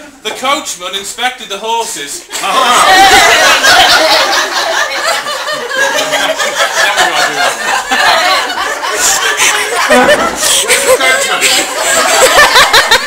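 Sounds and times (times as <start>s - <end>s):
crowd chattering: 1.6s - 13.0s
audience laughing: 2.3s - 13.0s.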